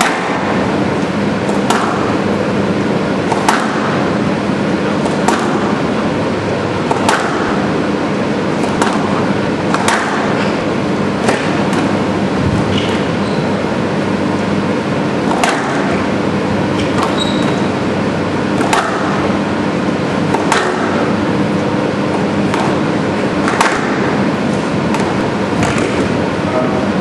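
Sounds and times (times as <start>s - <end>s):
squash ball cracks: 0.0s - 0.7s, 1.4s - 2.2s, 3.2s - 4.2s, 4.9s - 6.0s, 6.8s - 7.8s, 8.5s - 13.1s, 15.2s - 16.1s, 18.5s - 19.4s, 20.3s - 21.2s, 22.1s - 26.2s
steady hum: 0.0s - 27.0s.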